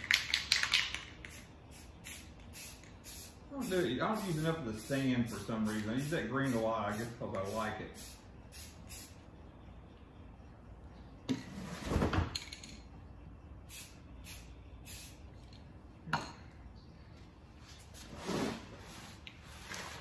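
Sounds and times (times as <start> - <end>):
spray paint can hissing: 0.0 - 9.2, 13.7 - 15.2.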